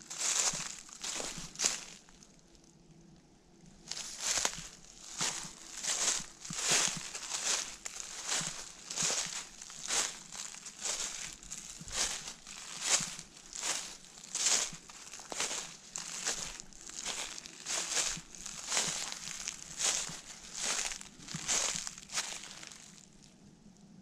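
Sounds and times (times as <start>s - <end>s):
footsteps crunching dry leaves: 0.0s - 2.3s, 3.9s - 23.2s.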